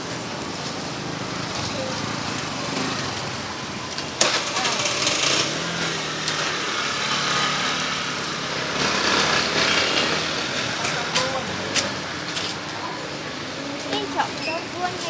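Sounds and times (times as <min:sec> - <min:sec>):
meat sizzling on a grill: 0:00.0 - 0:15.0
small engine running: 0:04.4 - 0:12.0.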